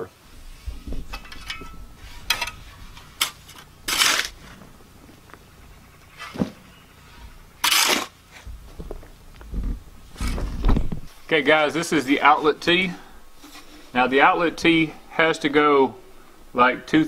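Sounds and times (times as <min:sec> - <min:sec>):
shovel scraping through dirt: 0:01.2 - 0:04.8, 0:05.9 - 0:08.5
shovel tossing sandy soil: 0:02.0 - 0:04.6, 0:07.6 - 0:08.5.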